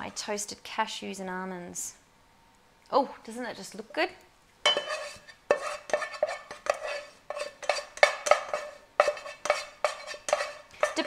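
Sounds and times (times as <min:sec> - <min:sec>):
spatula scraping saucepan: 0:04.7 - 0:11.0.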